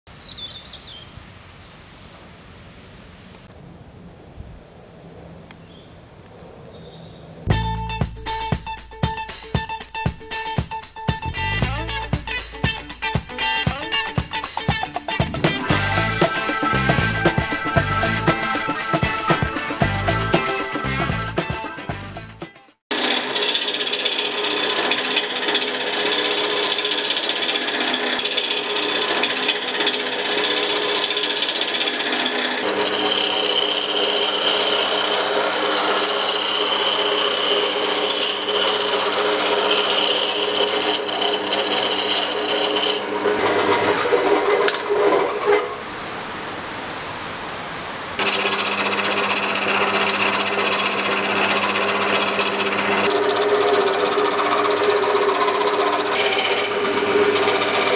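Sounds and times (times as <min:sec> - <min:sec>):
chisel scraping spinning wood: 0:22.9 - 0:45.7, 0:48.2 - 0:57.9
lathe motor hum: 0:22.9 - 0:45.7, 0:48.2 - 0:57.9.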